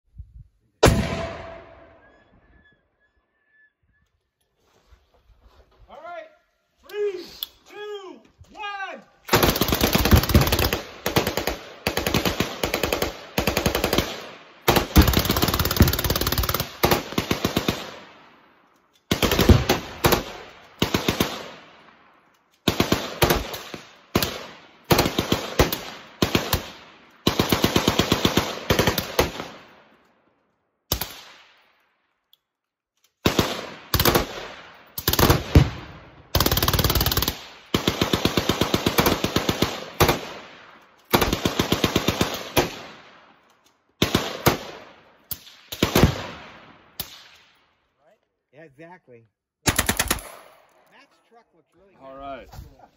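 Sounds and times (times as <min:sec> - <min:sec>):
machine-gun fire bursts: 0:09.3 - 0:18.0, 0:19.1 - 0:21.6, 0:22.7 - 0:29.6, 0:33.2 - 0:40.4, 0:41.1 - 0:42.9, 0:44.0 - 0:44.8, 0:45.7 - 0:46.4, 0:49.7 - 0:50.4.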